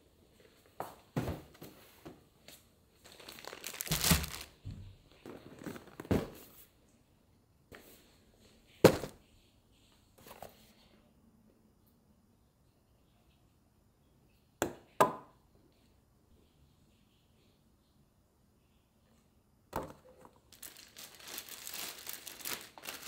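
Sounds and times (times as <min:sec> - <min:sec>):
plastic packaging crinkling: 0:02.9 - 0:04.6, 0:05.2 - 0:06.4, 0:20.3 - 0:23.0.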